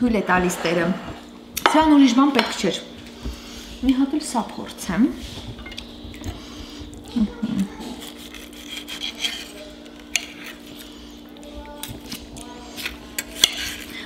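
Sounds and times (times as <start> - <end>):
knife scraping on ceramic plate: 8.0 - 10.9, 12.8 - 13.9.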